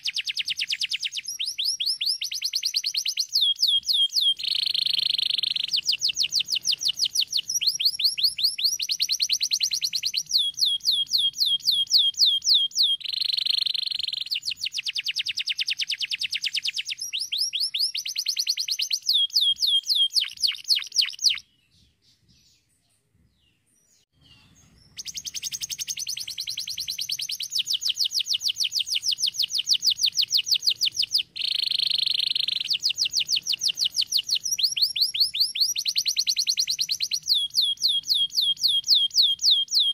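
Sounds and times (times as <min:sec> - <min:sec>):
canary singing trills: 0:00.0 - 0:22.7, 0:23.4 - 0:39.9.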